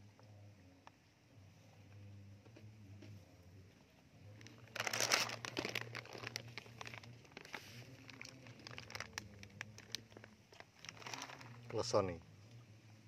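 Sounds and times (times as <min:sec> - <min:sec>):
low steady hum: 0:00.0 - 0:13.0
plastic bag crinkling: 0:04.4 - 0:12.0.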